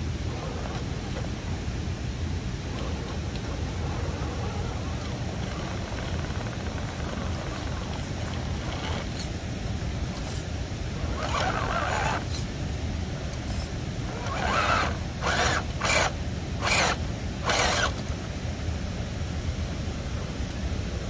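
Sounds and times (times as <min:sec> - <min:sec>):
steady low rumble: 0:00.0 - 0:21.0
rc car motor and gears revving: 0:00.2 - 0:01.6, 0:02.6 - 0:12.6, 0:13.3 - 0:18.2.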